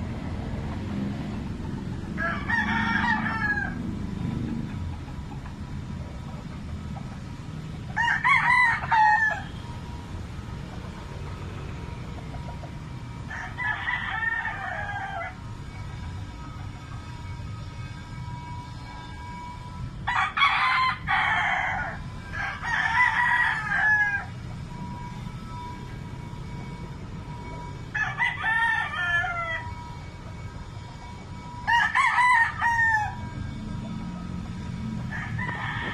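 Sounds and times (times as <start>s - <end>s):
rooster crowing: 2.1s - 5.4s, 7.8s - 9.8s, 13.2s - 15.8s, 20.0s - 25.7s, 27.4s - 30.1s, 30.7s - 35.9s.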